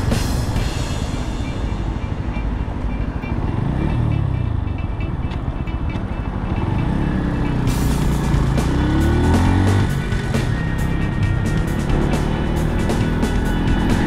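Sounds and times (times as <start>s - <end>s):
motorcycle engine running: 0.0s - 14.0s
road and wind noise: 0.0s - 14.0s.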